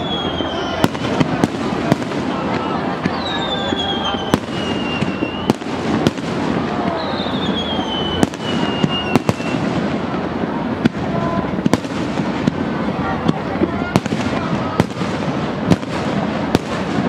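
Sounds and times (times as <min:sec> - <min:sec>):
falling firework whistles: 0:00.0 - 0:09.9
crowd chatter: 0:00.0 - 0:17.0
fireworks bursting: 0:00.0 - 0:17.0.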